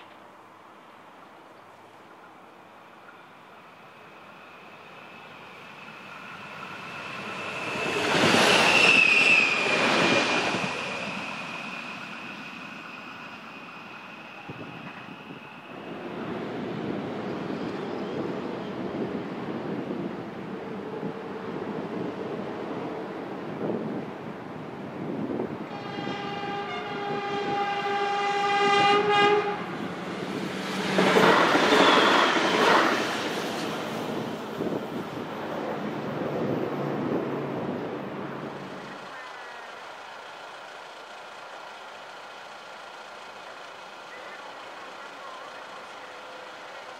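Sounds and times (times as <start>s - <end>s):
train rumble passing: 2.0s - 46.9s
train horn blast: 25.7s - 29.8s.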